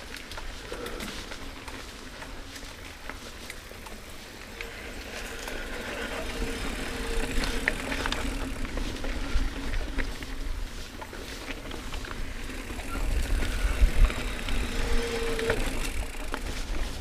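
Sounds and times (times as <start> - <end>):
bike clicks and rattles: 0.0 - 17.0
tyres rumbling on dirt: 0.4 - 17.0
wind on microphone: 12.6 - 16.0.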